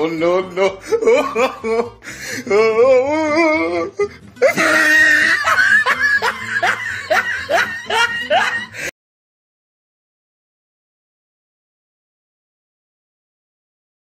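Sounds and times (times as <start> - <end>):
music: 0.0 - 8.9
person laughing: 0.5 - 8.9.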